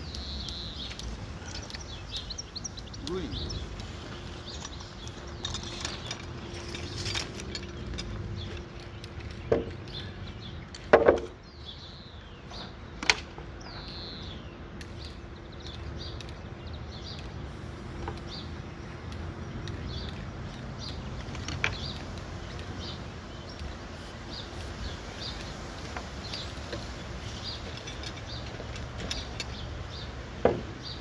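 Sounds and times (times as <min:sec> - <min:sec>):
birds chirping faintly: 0:00.0 - 0:31.0
hard knocks on timber: 0:30.4 - 0:30.8.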